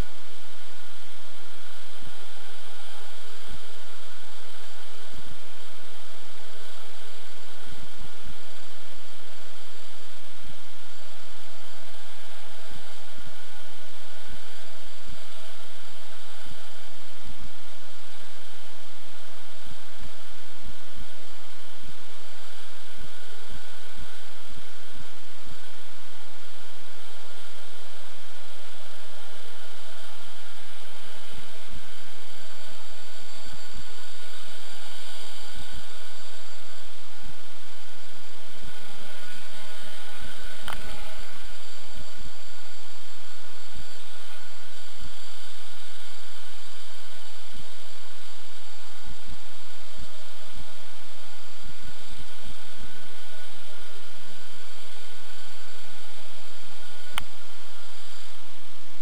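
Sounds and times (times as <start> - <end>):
drone motors and propellers droning: 0.0 - 59.0
drone propellers whirring: 26.5 - 48.6.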